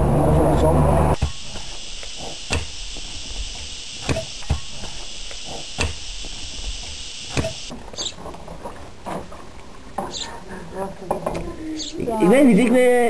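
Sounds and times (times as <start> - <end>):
steady high hiss: 0.0 - 7.7.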